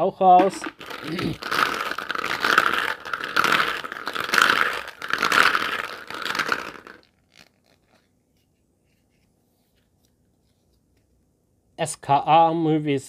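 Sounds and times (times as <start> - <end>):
plastic capsules clattering: 0.4 - 8.0.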